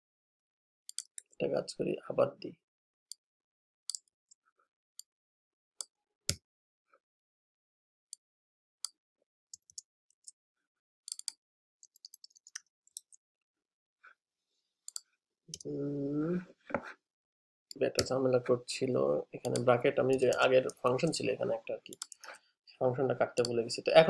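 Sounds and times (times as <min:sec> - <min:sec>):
keyboard and mouse clicks: 0:00.9 - 0:01.4, 0:11.1 - 0:13.2, 0:19.4 - 0:20.9.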